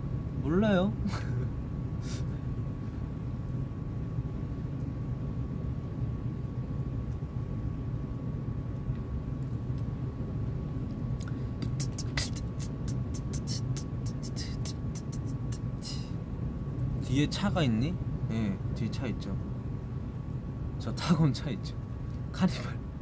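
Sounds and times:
faint steady hum: 0.0s - 23.0s
low rumble: 0.0s - 23.0s.

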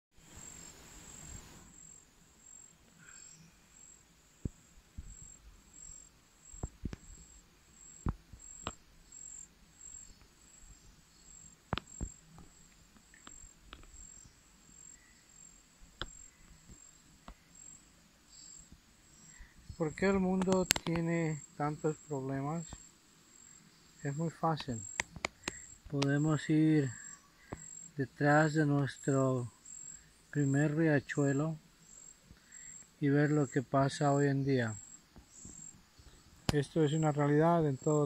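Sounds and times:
insect chirping: 0.2s - 38.0s
low background noise: 0.2s - 38.0s
sharp clicks and taps: 20.4s - 21.0s, 24.6s - 26.1s.

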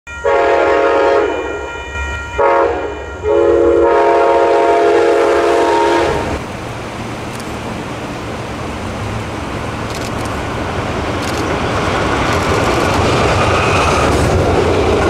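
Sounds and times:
locomotive air horn blasts: 0.1s - 6.4s.

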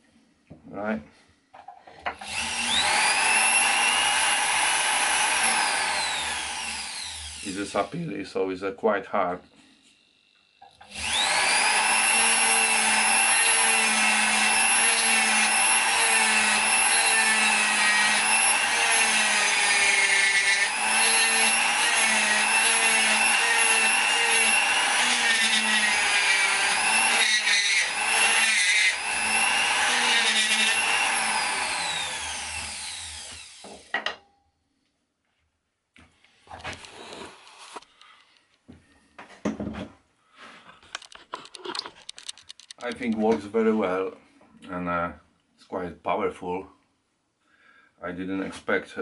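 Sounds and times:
rotary grinder whining: 2.2s - 7.6s, 10.8s - 33.8s
bur rasping into wood: 2.2s - 7.7s, 10.9s - 33.7s.

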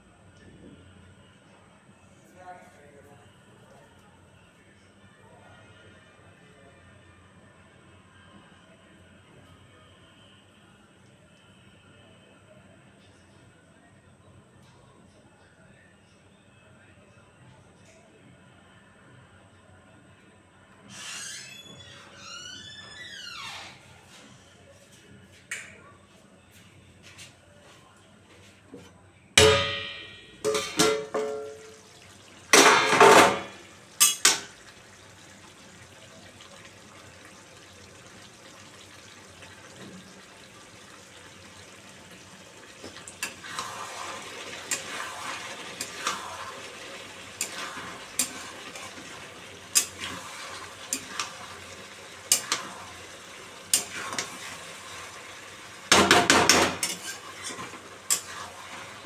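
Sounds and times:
metal lid clanging: 29.4s - 31.7s, 32.5s - 34.5s
hot oil sizzling: 30.4s - 59.0s
metal spatula scraping a pan: 43.2s - 46.7s, 47.3s - 49.1s, 49.7s - 51.4s, 56.6s - 59.0s.

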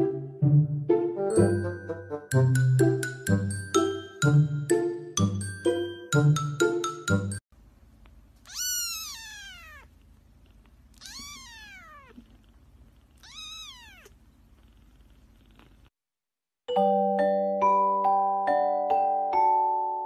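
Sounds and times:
cat meowing: 8.4s - 10.0s, 10.9s - 12.3s, 13.2s - 14.2s.

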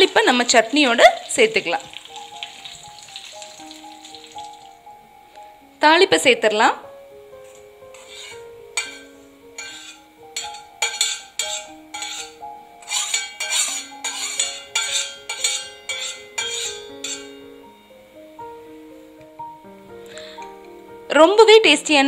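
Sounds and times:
gentle background music: 0.0s - 22.0s
metal spoon clinking on steel pan: 7.4s - 17.6s.

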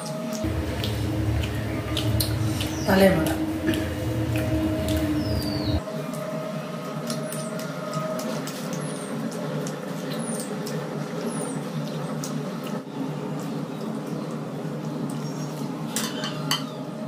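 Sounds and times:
chewing: 0.3s - 5.8s
steady low hum: 0.3s - 7.0s.

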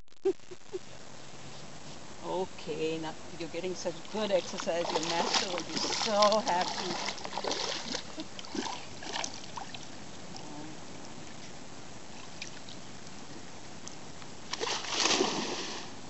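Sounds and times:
steady hiss of water: 0.8s - 16.0s
splashing in shallow water: 3.8s - 10.5s, 14.5s - 16.0s.

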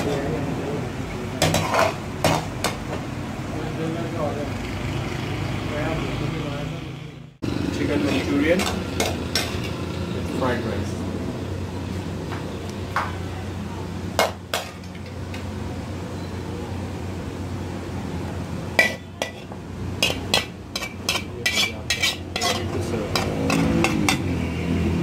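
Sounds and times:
ladle and pans clinking: 1.4s - 2.8s, 8.1s - 9.8s, 18.8s - 24.3s.

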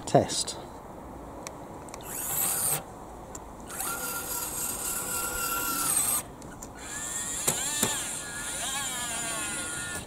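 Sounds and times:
small gear motor whining: 2.0s - 2.9s, 3.6s - 10.0s.

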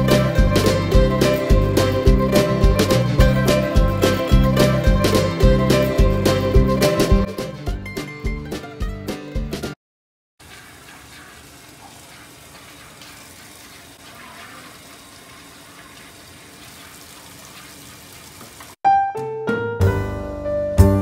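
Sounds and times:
water running from taps: 10.4s - 18.8s
piano music: 18.9s - 21.0s.

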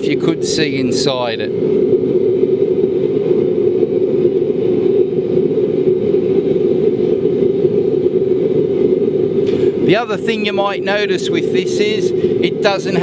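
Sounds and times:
oil burner flame rushing: 0.0s - 13.0s
strong low hum: 0.0s - 13.0s.

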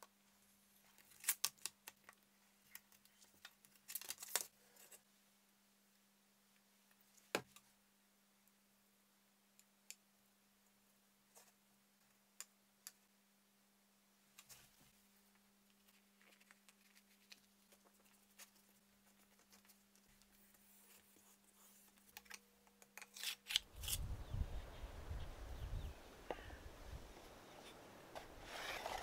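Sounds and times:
wind rumble on microphone: 23.7s - 27.5s.

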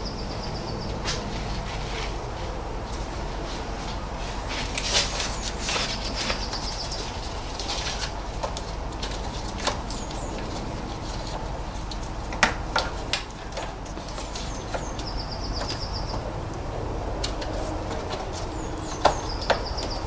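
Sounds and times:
bird chirps: 0.0s - 1.0s, 14.4s - 16.3s, 18.5s - 20.0s.

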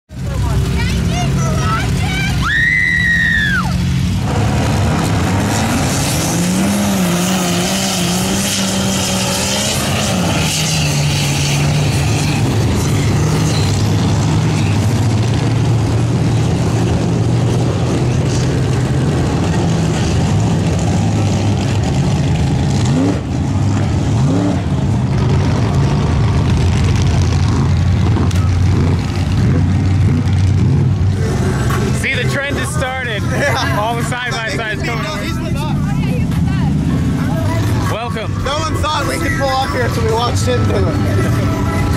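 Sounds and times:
truck engine revving: 0.1s - 41.9s
woman yelling: 0.7s - 3.8s.

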